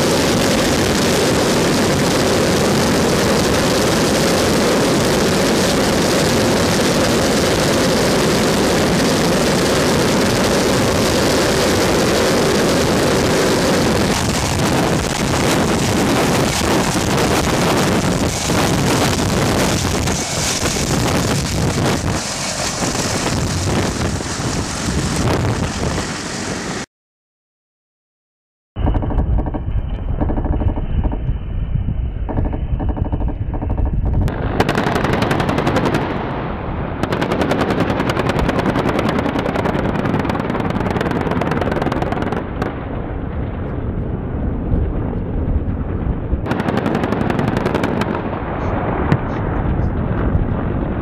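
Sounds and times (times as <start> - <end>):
helicopter rotor wash buffeting: 0.0 - 26.9.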